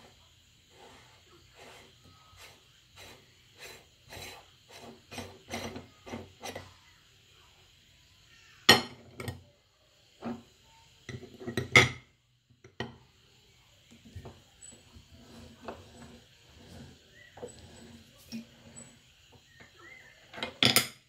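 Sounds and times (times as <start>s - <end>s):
metal ring scraping while unscrewed: 14.6s - 19.0s.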